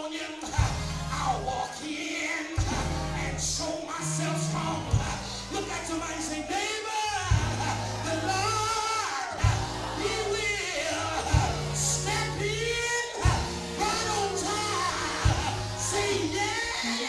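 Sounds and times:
person singing into a microphone: 0.0s - 17.0s
held bass notes: 0.6s - 1.5s, 2.6s - 16.8s
drum hits: 11.2s - 12.1s, 13.2s - 16.2s.

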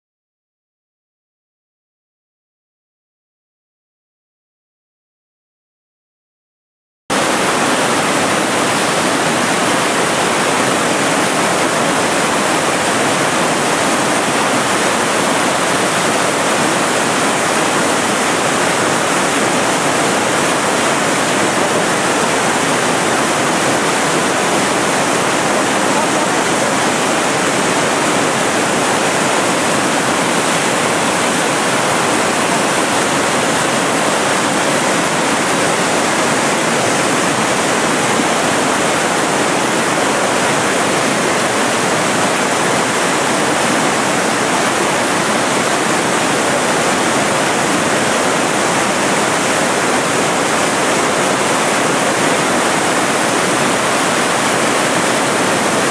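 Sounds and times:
waterfall rushing: 7.1s - 55.9s.

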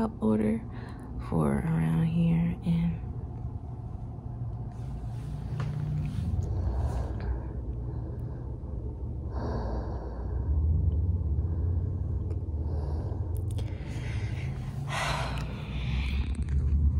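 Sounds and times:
low steady rumble: 0.0s - 16.9s
person breathing close to microphone: 4.7s - 16.4s.

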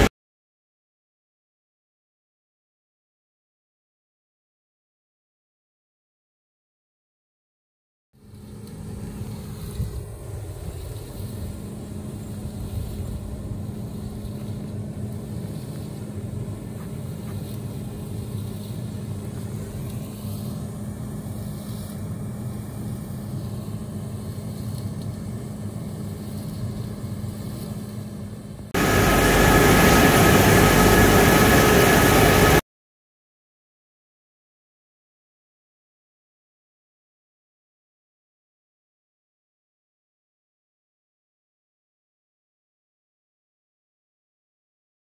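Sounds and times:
low hum from exhaust stack: 8.2s - 32.6s
drum dryer machinery whine: 8.4s - 32.6s
industrial drone: 28.8s - 32.6s.

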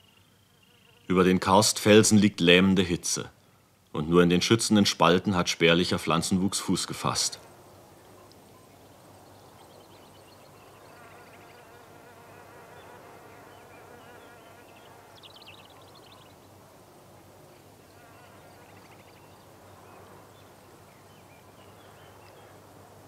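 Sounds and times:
flying insects buzzing: 9.4s - 23.0s.

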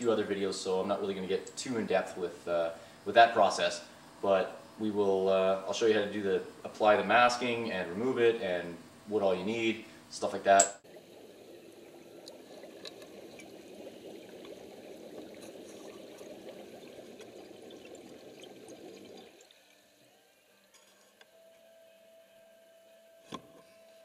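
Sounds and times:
liquid pouring into plastic tub: 10.9s - 19.8s.

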